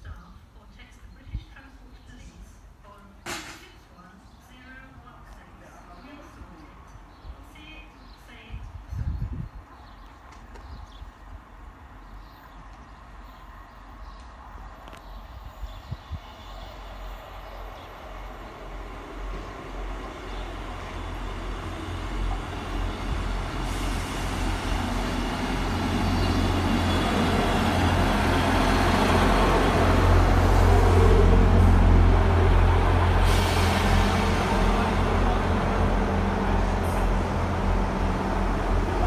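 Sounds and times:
diesel train engine drone: 0:11.2 - 0:39.0
train wheels rumbling: 0:16.4 - 0:39.0.

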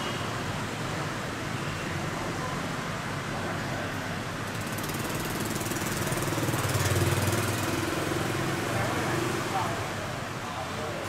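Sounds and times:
street traffic: 0:00.0 - 0:11.0
motorbike engines running: 0:03.1 - 0:11.0.

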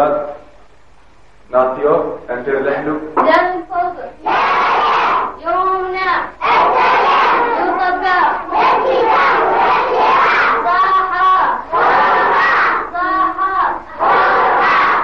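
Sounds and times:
children shouting a chant: 0:04.2 - 0:05.4, 0:06.4 - 0:15.0.

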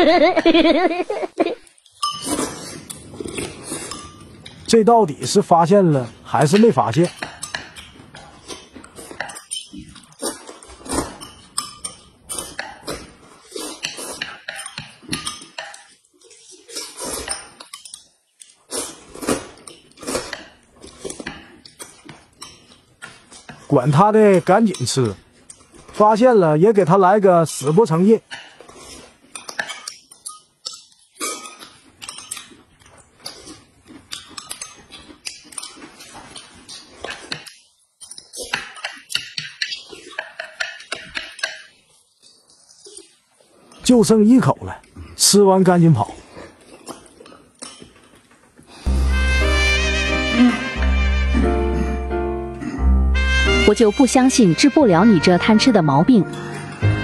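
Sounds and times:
noodles slurped and chewed: 0:01.6 - 0:04.7, 0:06.0 - 0:23.9, 0:27.5 - 0:43.8, 0:45.9 - 0:48.9
chopsticks and spoon clinking: 0:01.7 - 0:04.7, 0:06.1 - 0:13.0, 0:13.8 - 0:16.5
chopsticks clicking on plates: 0:13.8 - 0:16.0, 0:37.1 - 0:41.7.

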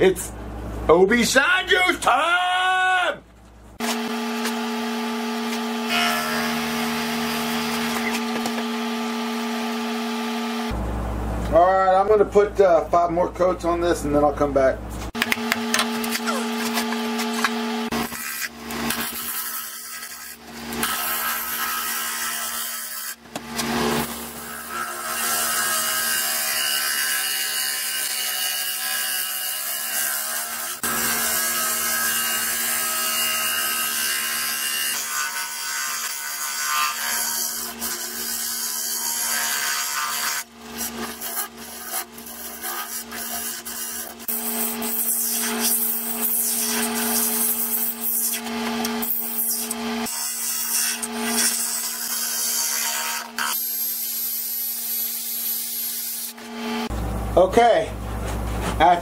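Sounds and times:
tool scraping wood on lathe: 0:40.2 - 0:49.8.

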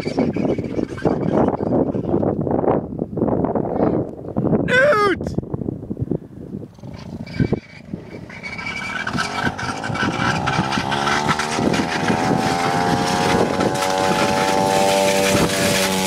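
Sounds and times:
motorbike engine running: 0:09.0 - 0:16.0.

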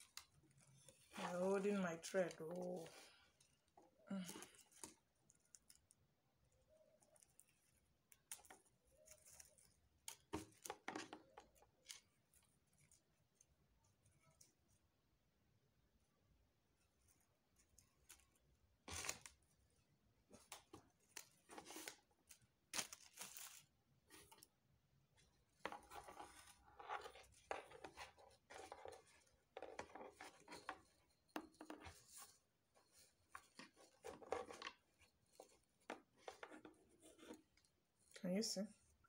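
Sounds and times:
scratchy rustles and scrapes: 0:20.3 - 0:22.4, 0:25.2 - 0:38.1.

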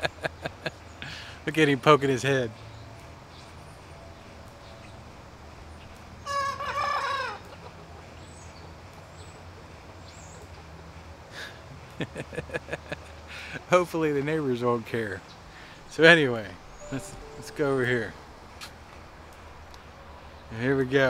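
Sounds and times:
young rooster crowing: 0:06.3 - 0:07.4.

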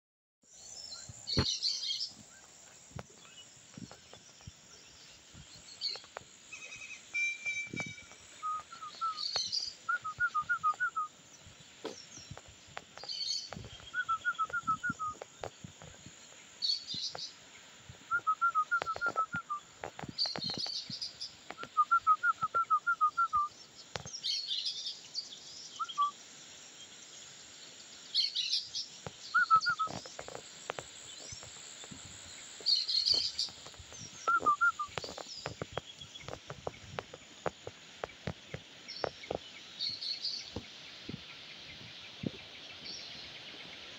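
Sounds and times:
bird chirping: 0:00.5 - 0:26.2, 0:26.8 - 0:43.9
high bird calls: 0:05.5 - 0:11.0, 0:28.2 - 0:30.4, 0:31.0 - 0:43.9
soft footsteps: 0:29.1 - 0:39.5.

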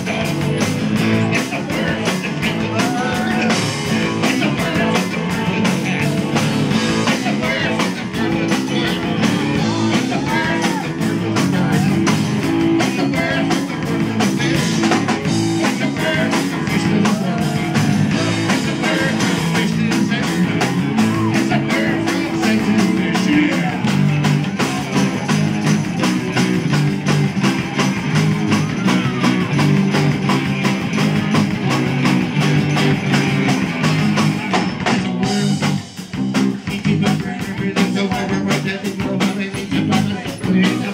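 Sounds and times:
drum kit beat: 0:00.0 - 0:40.9
electric guitars: 0:00.0 - 0:40.9.

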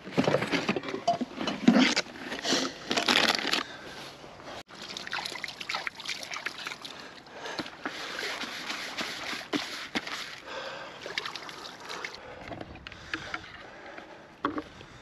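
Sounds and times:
water sloshing and splashing: 0:04.7 - 0:13.6.

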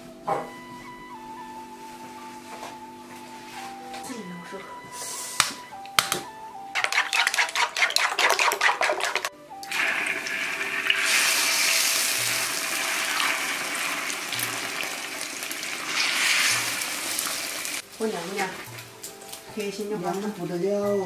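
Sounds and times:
chopsticks beating eggs in bowl: 0:06.8 - 0:09.3
egg sizzling in hot oil: 0:06.8 - 0:17.8.

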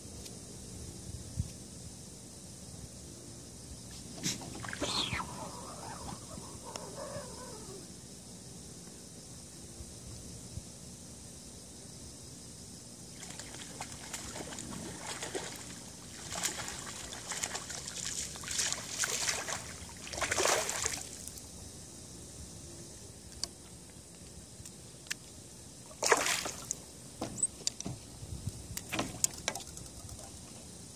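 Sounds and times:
water splashing and sloshing: 0:03.9 - 0:06.4, 0:13.1 - 0:21.4, 0:25.8 - 0:28.0, 0:28.8 - 0:30.6.

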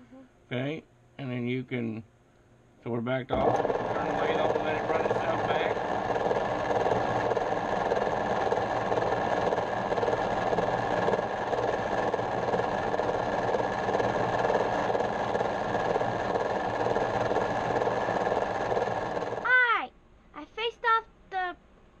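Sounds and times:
metal lathe whirring: 0:03.4 - 0:19.5.

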